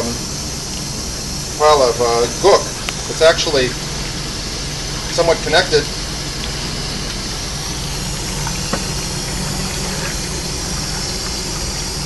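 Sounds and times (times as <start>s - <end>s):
low steady hum: 0.0s - 12.0s
water hissing into floor drain: 0.0s - 12.0s.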